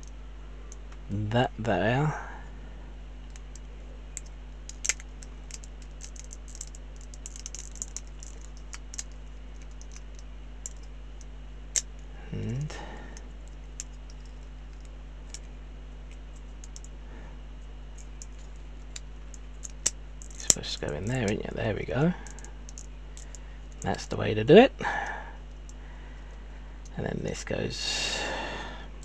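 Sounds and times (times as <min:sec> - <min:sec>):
low hum of a voice: 0:00.4 - 0:03.0, 0:12.1 - 0:13.3, 0:20.4 - 0:22.4, 0:23.8 - 0:25.4, 0:26.9 - 0:29.0
plastic parts clicking: 0:03.3 - 0:10.9, 0:18.0 - 0:21.4, 0:22.2 - 0:24.0.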